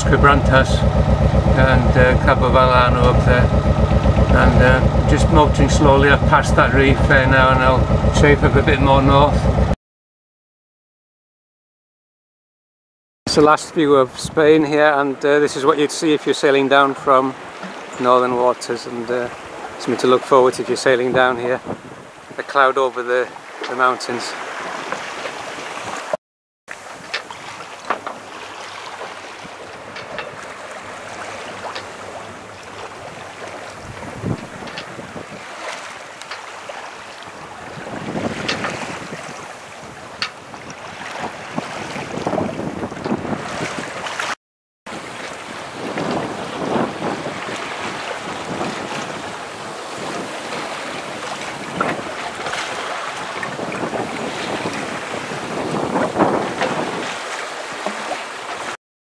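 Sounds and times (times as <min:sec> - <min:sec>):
water splashing against hull: 0:00.0 - 0:09.8, 0:16.4 - 0:18.3, 0:18.9 - 0:58.8
wind noise on microphone: 0:21.4 - 0:22.4, 0:31.6 - 0:35.6, 0:37.3 - 0:44.3, 0:44.9 - 0:57.2.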